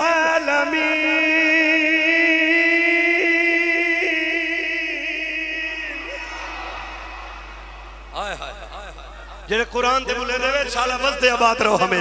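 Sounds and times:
man chanting: 0.0 - 7.2.

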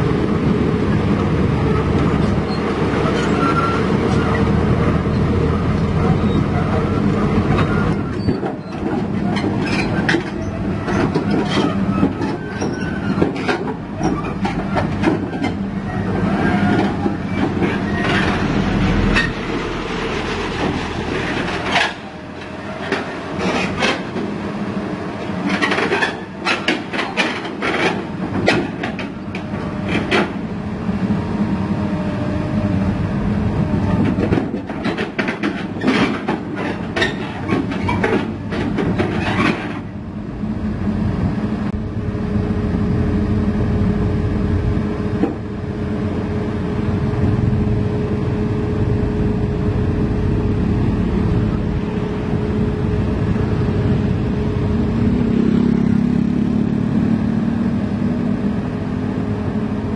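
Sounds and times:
diesel engine drone: 0.0 - 59.9
excavator tracks clanking: 1.7 - 24.4, 25.2 - 30.6, 33.6 - 40.0.

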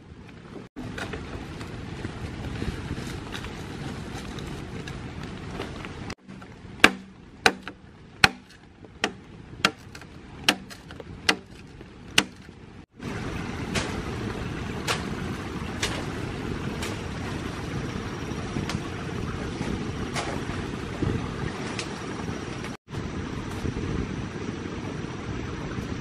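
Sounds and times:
wind and rain rushing: 0.0 - 26.0
knife chopping bamboo: 6.2 - 11.6, 12.2 - 12.5.

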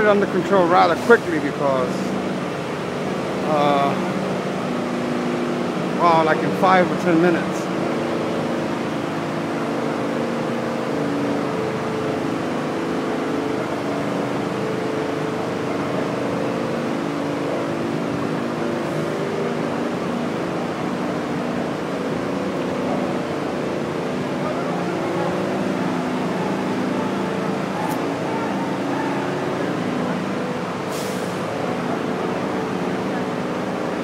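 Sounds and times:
fire truck engines droning: 0.0 - 34.0
street noise: 0.0 - 34.0.

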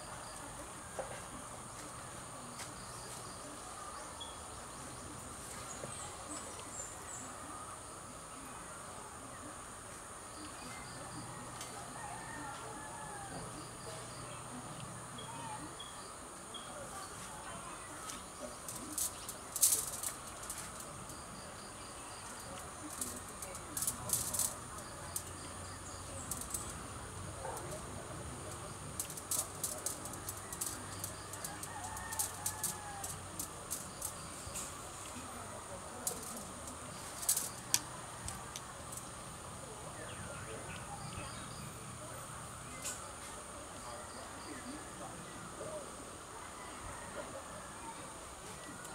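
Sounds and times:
insects droning: 0.0 - 48.9
wire cutters clicking and snipping: 18.6 - 20.9, 22.6 - 25.4, 28.5 - 34.8, 36.0 - 39.1.

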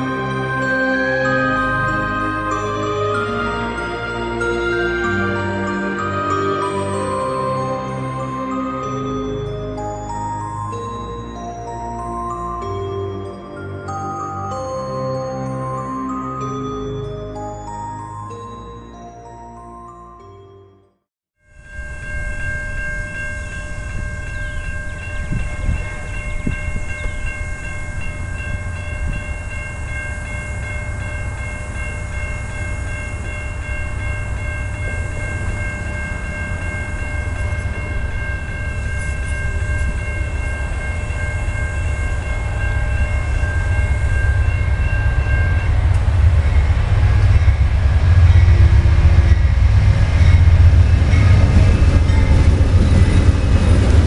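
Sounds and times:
railroad crossing bell ringing: 0.0 - 54.0
train rumble: 21.5 - 54.0.

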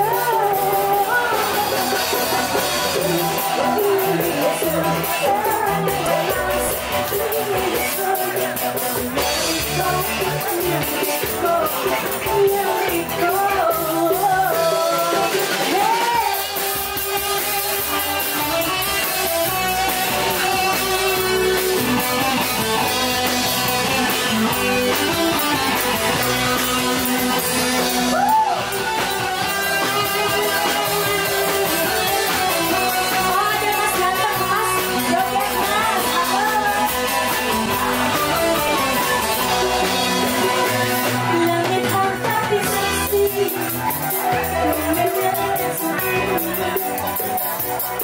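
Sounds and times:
woman singing into a microphone: 0.0 - 16.6, 30.0 - 47.0
drums: 0.0 - 48.0
electric guitar: 0.0 - 48.0.

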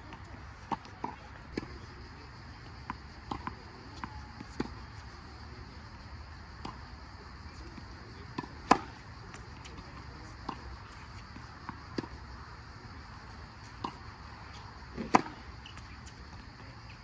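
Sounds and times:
tennis ball bouncing on court: 0.0 - 1.8, 2.8 - 4.9, 6.6 - 6.8, 7.7 - 12.2, 13.6 - 16.5
racket striking tennis ball: 8.3 - 12.1, 13.7 - 16.2.

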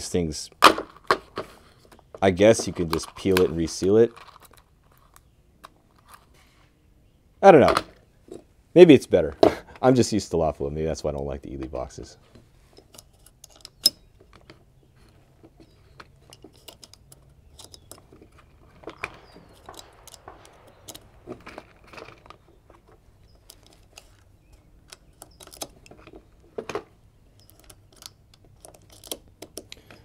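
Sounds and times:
plastic ammo box rustling: 0.8 - 5.2, 12.8 - 30.0
cartridges clicking into magazine: 18.9 - 22.5.

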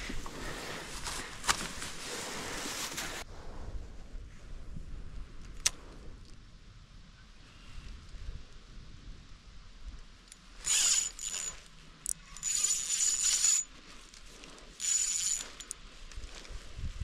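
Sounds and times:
reel click: 10.3 - 13.7
fishing reel whirring: 10.6 - 13.7, 14.7 - 15.8.

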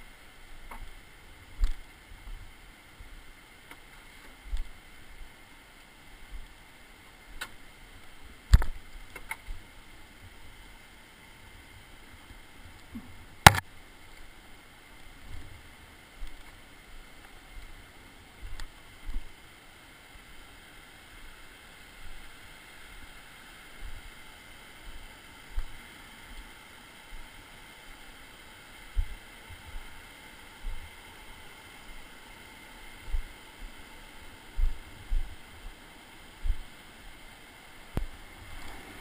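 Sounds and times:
steady background hiss: 0.0 - 39.0
footsteps on rocky trail: 34.6 - 35.4.

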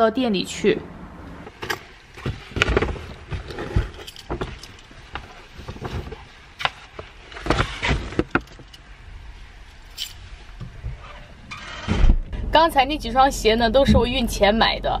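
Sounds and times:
rustling: 1.4 - 12.0.

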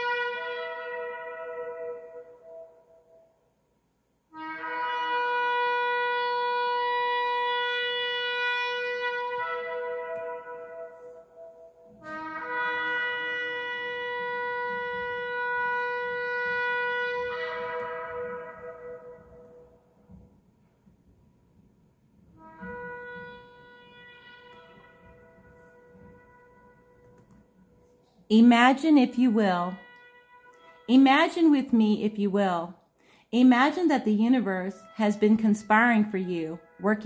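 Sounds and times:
horn blasts: 0.0 - 3.4, 4.3 - 20.4, 22.3 - 32.6, 33.2 - 37.0.

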